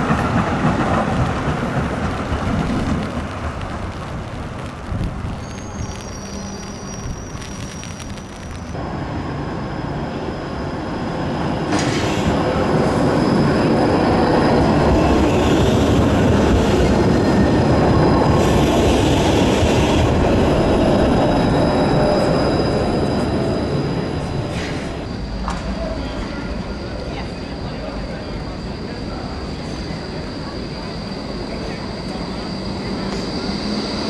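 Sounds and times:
tram wheels rumbling on rail: 0.0 - 34.0
wheel squeal: 5.4 - 8.8.

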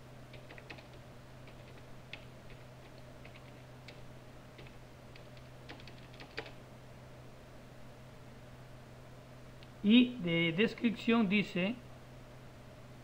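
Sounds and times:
typing on computer keyboard: 0.3 - 4.0, 4.6 - 6.6.

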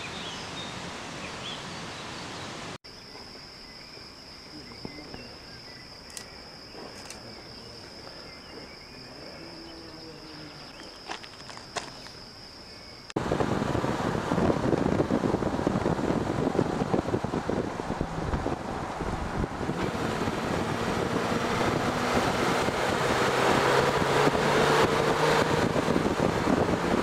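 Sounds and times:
high-pitched insect trill: 2.9 - 13.2
wind rumble on microphone: 13.2 - 27.0.

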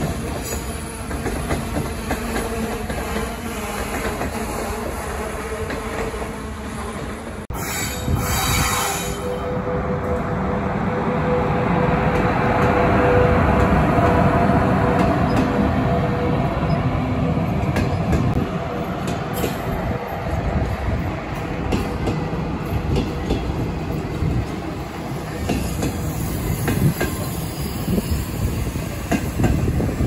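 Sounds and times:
train rumbling past: 0.0 - 30.0
wheel squeal: 7.6 - 9.4.

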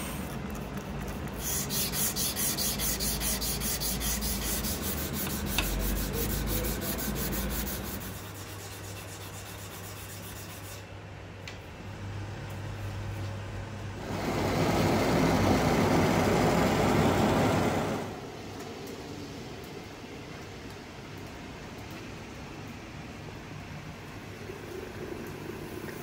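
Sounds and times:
workshop machine humming: 0.0 - 10.7, 11.7 - 18.4.

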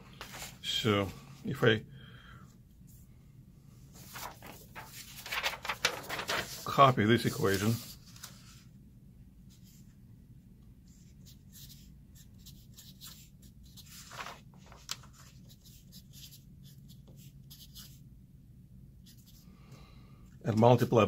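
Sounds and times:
low steady hum: 0.0 - 21.0
marker scratching on paper: 11.2 - 13.9, 15.5 - 18.0.

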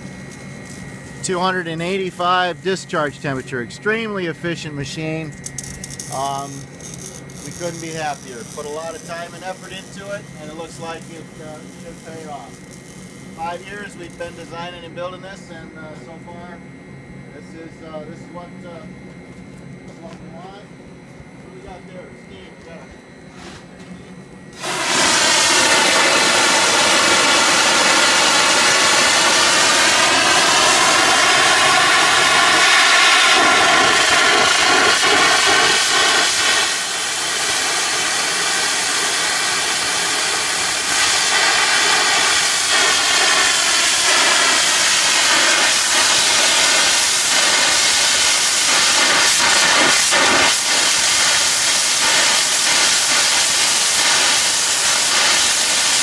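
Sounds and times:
steam hissing and whistling: 6.1 - 14.5, 24.6 - 56.0.

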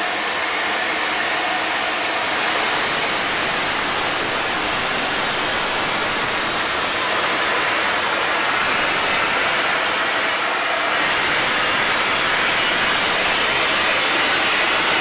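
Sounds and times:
loud hiss of steam: 2.6 - 10.4.

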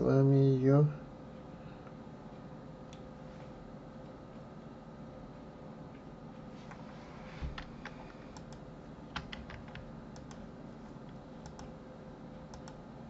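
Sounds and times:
low steady hum: 0.0 - 13.0
keyboard keys clicking: 7.6 - 10.4, 11.4 - 11.7, 12.5 - 12.8
computer mouse clicks: 7.6 - 11.8, 12.5 - 12.8.

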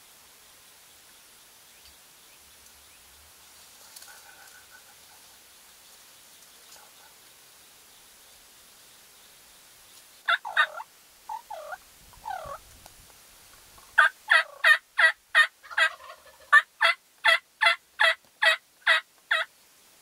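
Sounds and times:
turkey yelping: 10.3 - 12.6, 14.0 - 19.5.

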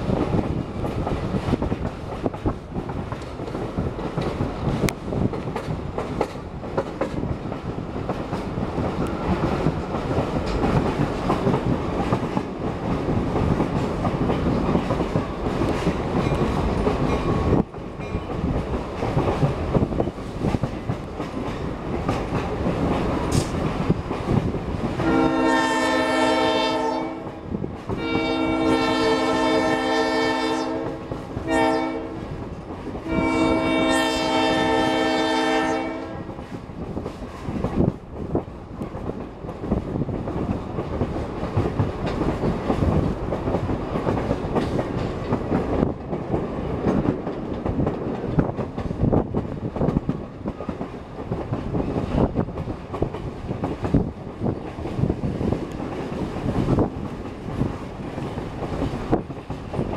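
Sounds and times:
locomotive air horn blasts: 25.0 - 27.4, 28.0 - 32.2, 33.1 - 36.3.

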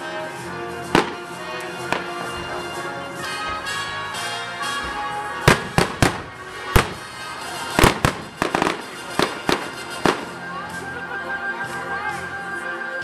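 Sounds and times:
music: 0.0 - 13.0
fireworks bangs and cracks: 0.8 - 2.7, 4.9 - 10.4.

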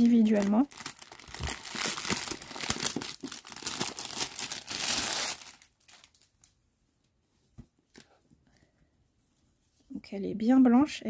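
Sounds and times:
plastic wrapping crinkling: 0.0 - 6.6.

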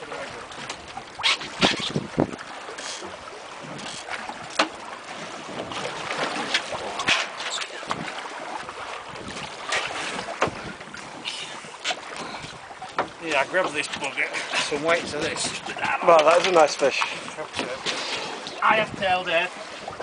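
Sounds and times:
sea against boat hull: 0.0 - 20.0
water splashes: 0.0 - 20.0
wind on microphone: 1.1 - 2.6, 7.7 - 12.7, 14.7 - 16.0, 18.6 - 19.2
knocks on boat: 3.0 - 4.8, 9.3 - 10.8, 11.8 - 14.1, 17.5 - 18.0.

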